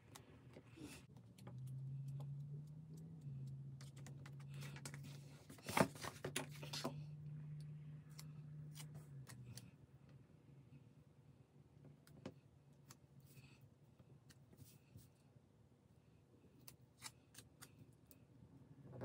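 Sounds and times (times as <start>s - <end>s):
stickers peeling and paper rustling: 0.0s - 6.9s
low steady hum: 0.0s - 19.0s.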